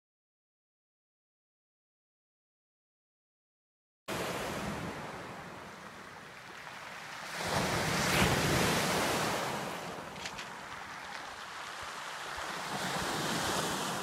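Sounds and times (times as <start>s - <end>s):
waves washing over pebbles: 4.1s - 14.0s.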